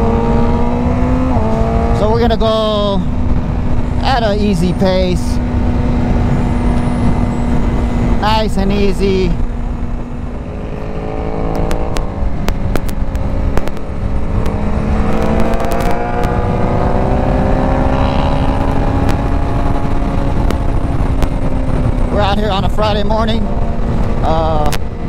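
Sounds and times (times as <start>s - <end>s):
sport motorcycle engine revving: 0.0s - 4.4s, 5.2s - 25.0s
wind rumble on microphone: 0.0s - 25.0s
microphone crackles: 9.4s - 17.1s.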